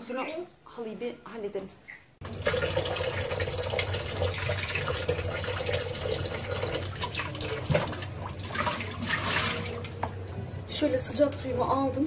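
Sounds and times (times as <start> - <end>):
tap water filling basin: 2.2 - 10.2.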